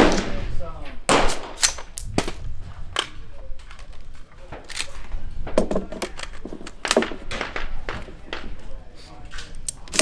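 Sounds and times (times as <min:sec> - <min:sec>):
rifle shots: 0:00.0 - 0:00.5, 0:01.1 - 0:02.3.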